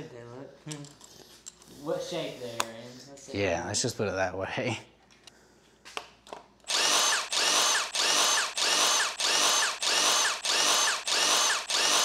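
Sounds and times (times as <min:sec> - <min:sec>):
impact driver hammering: 0:06.7 - 0:12.0.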